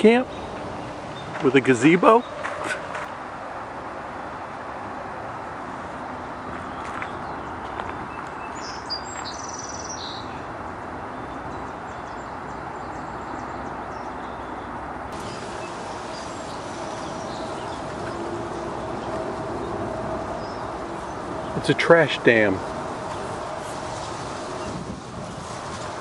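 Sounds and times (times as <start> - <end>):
distant traffic hum: 0.0 - 26.0
small bird chirping: 6.6 - 10.5
faint high bird calls: 8.3 - 10.5.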